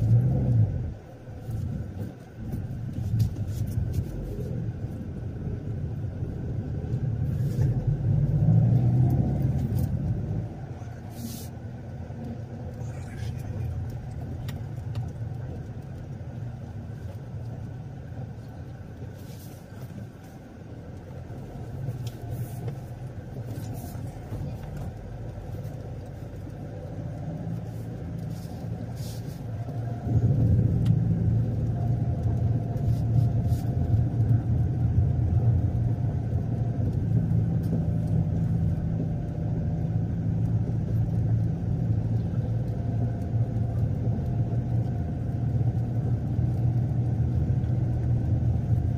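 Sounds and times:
car engine and road rumble: 0:00.0 - 0:48.9.

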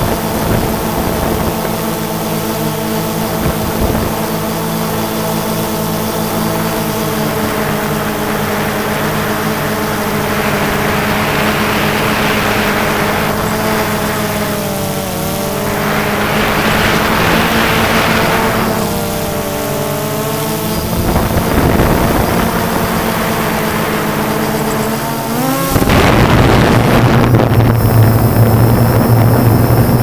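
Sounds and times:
drone propellers whining: 0:00.0 - 0:30.0
rushing noise: 0:06.3 - 0:30.0.

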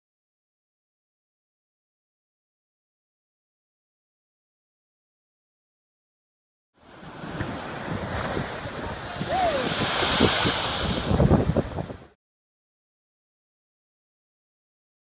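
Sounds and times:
sea waves crashing: 0:06.8 - 0:12.2
wind buffeting microphone: 0:07.0 - 0:12.2.

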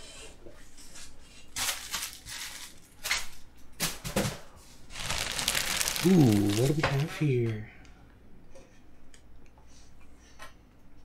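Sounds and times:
plastic wrapping crinkling: 0:01.5 - 0:02.9, 0:04.9 - 0:07.2.

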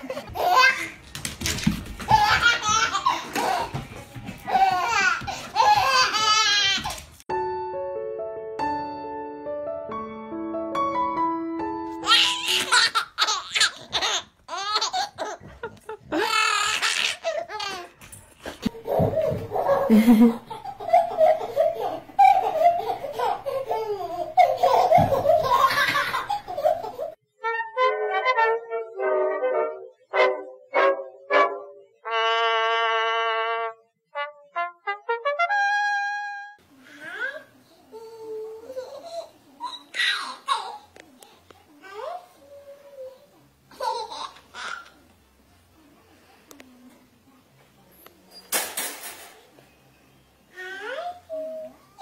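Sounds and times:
baby laughing: 0:00.0 - 0:01.0, 0:02.0 - 0:03.8, 0:04.5 - 0:07.0, 0:12.0 - 0:18.0, 0:18.6 - 0:27.2, 0:43.7 - 0:45.0.

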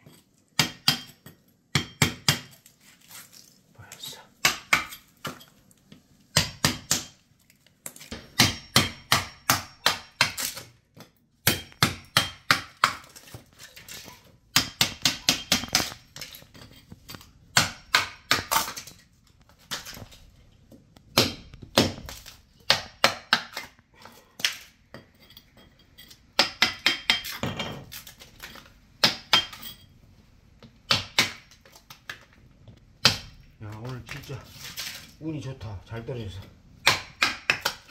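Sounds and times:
hammer striking chisel: 0:00.6 - 0:02.6, 0:04.4 - 0:05.5, 0:06.3 - 0:07.2, 0:08.1 - 0:13.2, 0:14.5 - 0:16.3, 0:17.1 - 0:18.7, 0:21.1 - 0:22.0, 0:22.6 - 0:23.8, 0:26.3 - 0:27.8, 0:29.0 - 0:29.8, 0:36.8 - 0:37.9.

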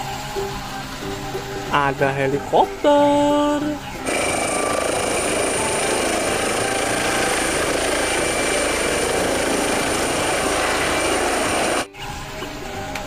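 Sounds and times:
toy helicopter whirring: 0:04.0 - 0:11.9.

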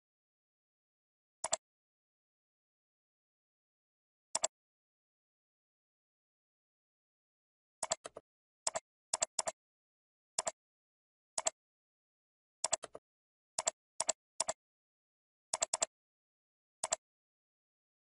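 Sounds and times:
computer mouse clicking: 0:07.8 - 0:09.6, 0:12.6 - 0:13.0, 0:13.6 - 0:14.6, 0:15.5 - 0:15.9, 0:16.8 - 0:17.0.

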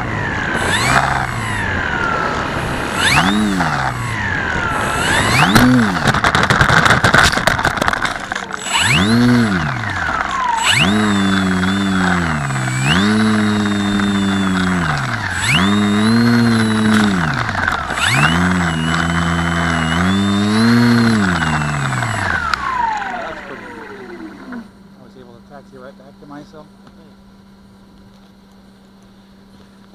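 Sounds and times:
electric motor and propeller revving: 0:00.0 - 0:24.7
model plane crashing into dirt: 0:05.2 - 0:11.1.

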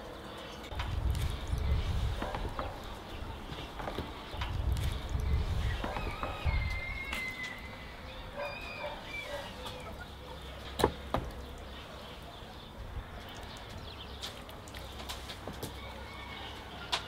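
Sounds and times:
rooster crowing faintly: 0:15.7 - 0:17.0.

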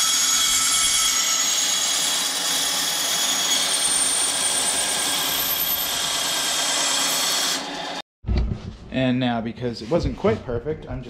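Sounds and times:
power tool cutting aluminum: 0:00.0 - 0:08.0.

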